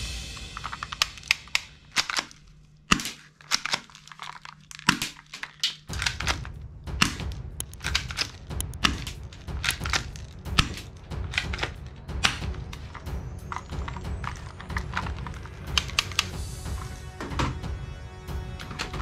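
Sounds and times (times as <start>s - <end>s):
rustling: 0.2s - 17.0s
plastic toy guns clicking and rattling: 0.6s - 16.4s
low rumble: 5.9s - 19.0s.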